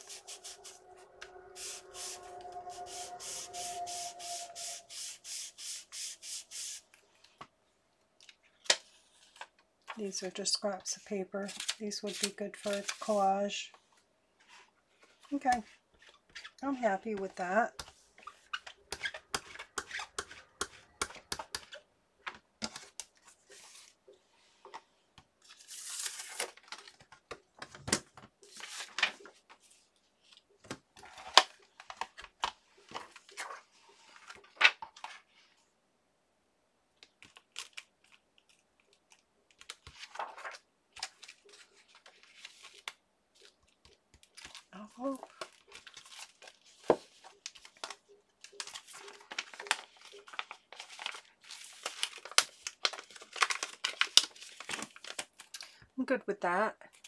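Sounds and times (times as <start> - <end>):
paper rustling and crinkling: 11.4 - 13.3, 14.4 - 35.5, 37.2 - 55.8.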